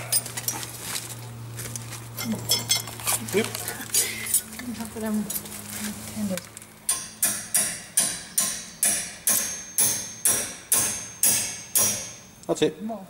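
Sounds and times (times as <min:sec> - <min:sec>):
hammer striking spanner: 0:06.9 - 0:12.4.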